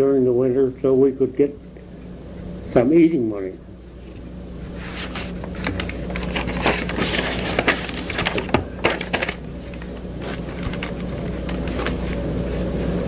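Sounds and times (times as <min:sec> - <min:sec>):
steady low hum: 0:00.0 - 0:13.0
irregular clicks and rustling: 0:05.0 - 0:12.2.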